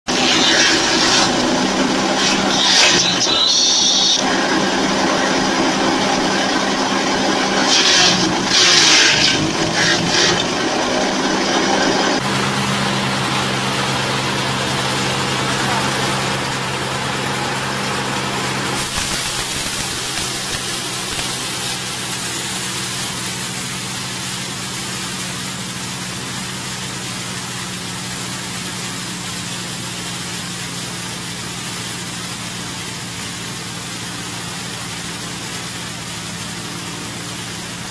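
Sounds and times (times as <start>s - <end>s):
machine engine humming: 0.1s - 29.2s
grinder hissing: 0.1s - 37.9s
branches being shredded: 18.8s - 24.2s.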